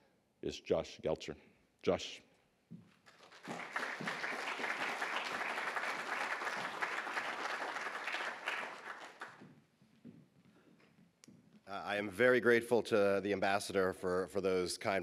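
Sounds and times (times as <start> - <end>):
audience applause: 3.2 - 9.4.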